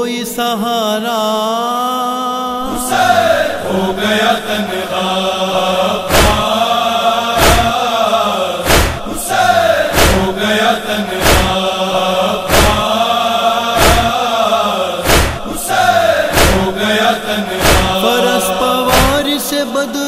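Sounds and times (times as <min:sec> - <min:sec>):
men chanting in unison: 0:00.1 - 0:20.0
heavy chest-beating thumps: 0:06.0 - 0:06.6, 0:07.4 - 0:07.8, 0:08.6 - 0:13.1, 0:13.8 - 0:14.2, 0:15.0 - 0:18.0, 0:18.9 - 0:19.2.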